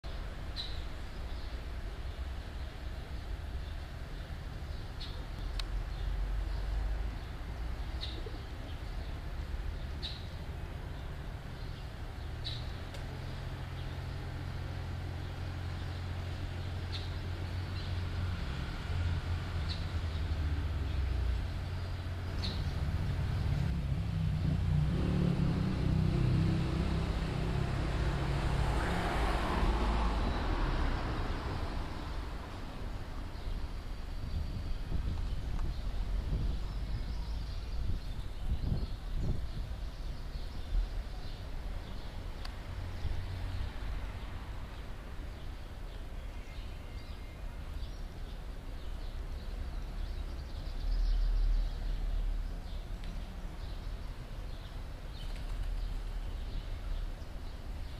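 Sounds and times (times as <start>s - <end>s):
small birds chirping: 0.0s - 57.9s
traffic engine rumble: 0.0s - 57.9s
passing vehicle hiss: 5.8s - 38.0s.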